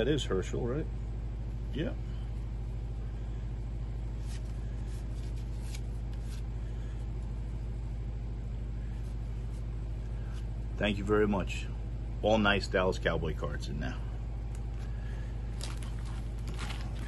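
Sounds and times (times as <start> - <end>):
steady low hum: 0.0 - 17.0
trading cards rustling: 4.1 - 7.6, 14.6 - 17.0.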